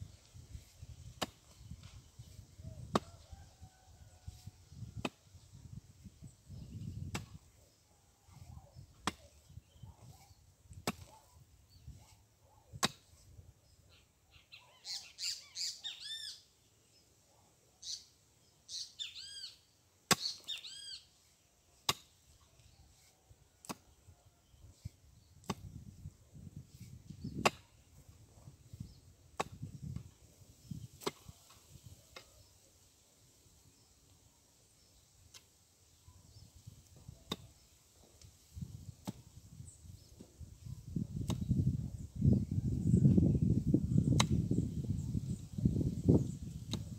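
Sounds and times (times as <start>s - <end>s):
pickaxe striking clay soil: 0.6s - 1.9s, 2.8s - 3.2s, 5.0s - 5.2s, 6.9s - 7.5s, 8.4s - 11.2s, 12.7s - 13.3s, 20.1s - 20.6s, 21.8s - 22.7s, 23.6s - 24.0s, 24.8s - 25.9s, 26.8s - 27.8s, 29.3s - 30.1s, 30.8s - 32.3s, 37.2s - 37.7s, 38.9s - 39.3s, 41.2s - 41.5s, 44.1s - 44.4s, 46.7s - 46.9s
bird chirping: 13.7s - 17.1s, 17.8s - 21.1s.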